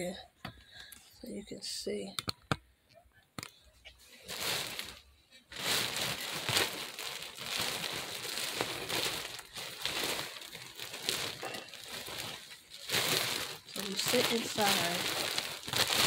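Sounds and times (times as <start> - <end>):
foil cover crinkling and rustling: 4.2 - 16.0.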